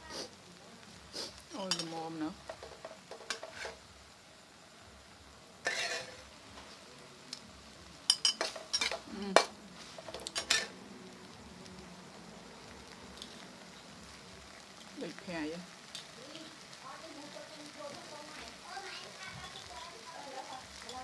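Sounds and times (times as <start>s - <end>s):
food sizzling: 0.0s - 21.0s
metal spatula clanking on wok: 5.6s - 6.2s, 8.1s - 9.5s, 10.1s - 10.7s.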